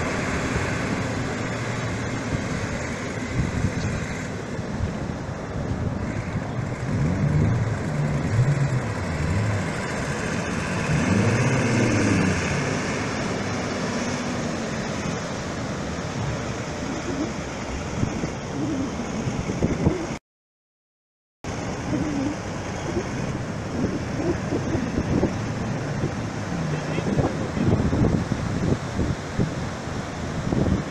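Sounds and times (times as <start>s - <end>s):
wind noise: 2.2s - 12.9s, 15.8s - 20.2s, 21.8s - 30.9s
engines revving: 6.0s - 20.2s, 21.5s - 28.5s
surf: 21.5s - 30.9s.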